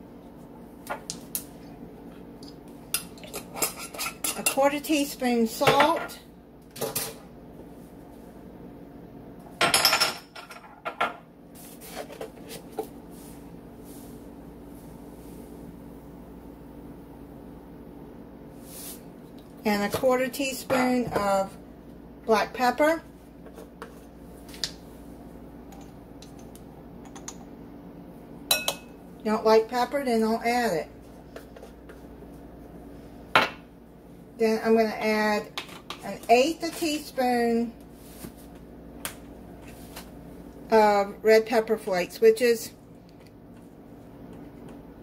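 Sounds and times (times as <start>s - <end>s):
faint steady hum: 0.0s - 45.0s.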